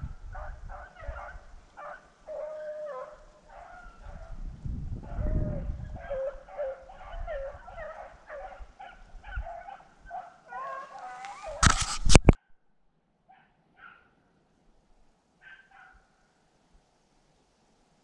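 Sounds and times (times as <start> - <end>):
hounds baying: 0.4 - 4.4, 5.0 - 11.6, 15.4 - 16.0.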